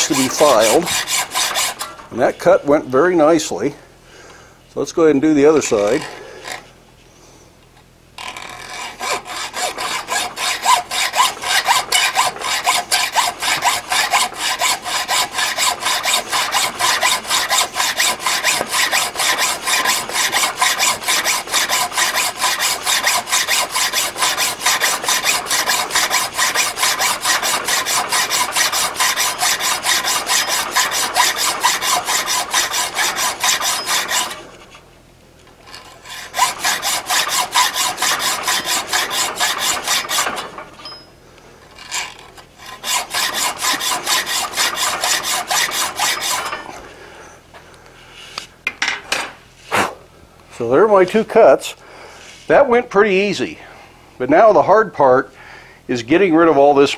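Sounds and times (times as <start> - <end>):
hacksaw cutting steel: 0.0 - 2.1, 8.2 - 34.8, 35.7 - 41.1, 41.8 - 46.8.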